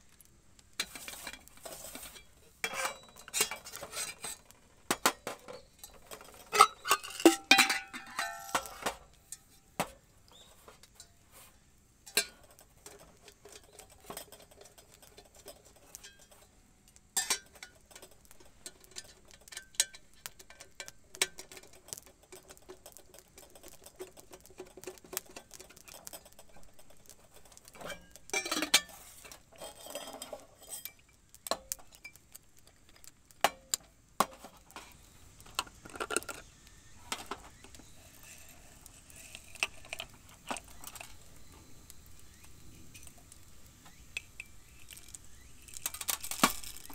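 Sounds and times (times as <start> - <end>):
metal kettle clinking: 5.2 - 9.0
glass jar clinking: 5.6 - 9.5
hand coffee grinder: 37.1 - 46.9.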